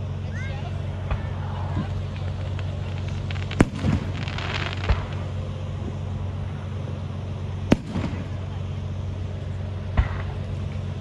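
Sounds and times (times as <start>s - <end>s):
fireworks crackling: 0.0s - 11.0s
steady low hum: 0.0s - 11.0s
sharp firework bang: 3.5s - 5.2s.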